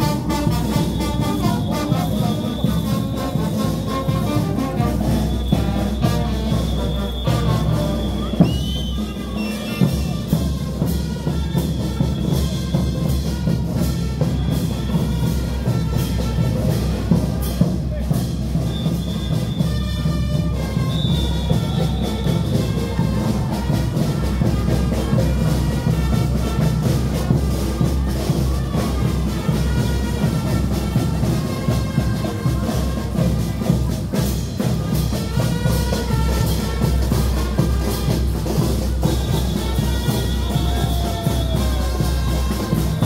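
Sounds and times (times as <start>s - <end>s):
brass band with drums: 0.0s - 43.0s.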